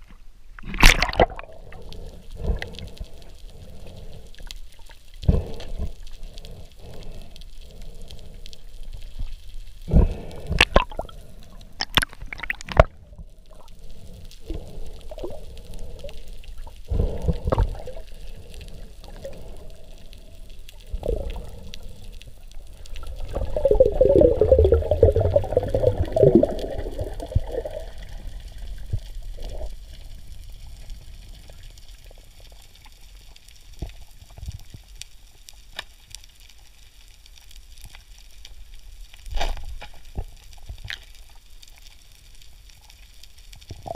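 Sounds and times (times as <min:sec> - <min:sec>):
water gurgling and sloshing: 0:00.0 - 0:08.3, 0:09.0 - 0:32.5
water bubbling: 0:00.7 - 0:08.6, 0:09.9 - 0:32.0.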